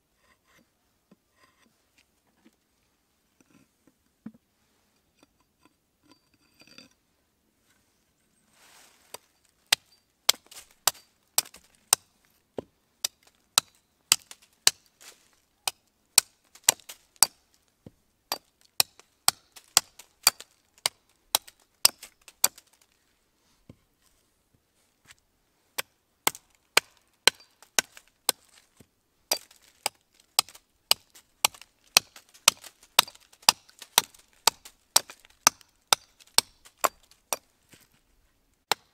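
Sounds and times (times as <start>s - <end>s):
axe chopping wood: 9.7s - 15.0s, 15.6s - 17.5s, 18.3s - 22.8s, 25.8s - 28.6s, 29.3s - 37.5s, 38.6s - 38.9s.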